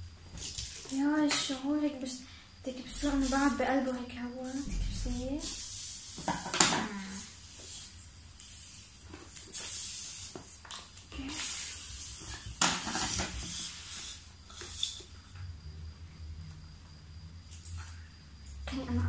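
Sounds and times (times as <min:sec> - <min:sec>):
rubber balloons rustling and hissing: 0:02.8 - 0:15.2.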